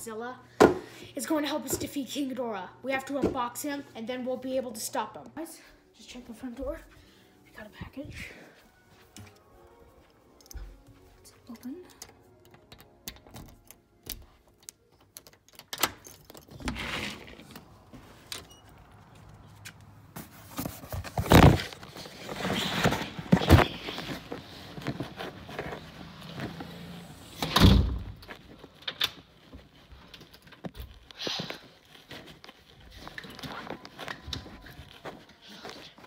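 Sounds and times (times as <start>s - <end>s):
rustling handling noise: 16.1s - 26.9s, 28.2s - 36.0s.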